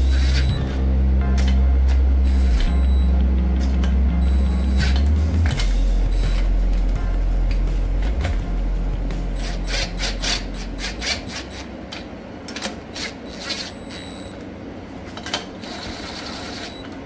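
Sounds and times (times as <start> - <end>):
low hum: 0.0 - 12.6.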